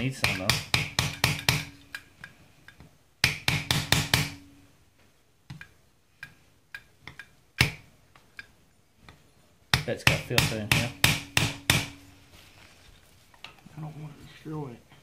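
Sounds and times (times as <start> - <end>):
metal taps and clicks: 0.2 - 4.4, 5.0 - 12.0.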